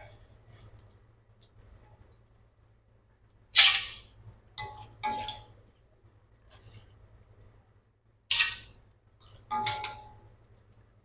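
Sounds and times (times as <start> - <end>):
metal utensils clinking on a wok: 9.5 - 10.2.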